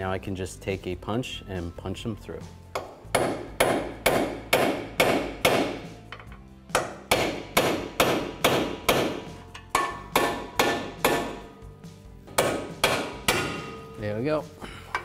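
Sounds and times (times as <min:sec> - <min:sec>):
hammer striking steel punch: 0:02.8 - 0:11.6, 0:12.3 - 0:14.0.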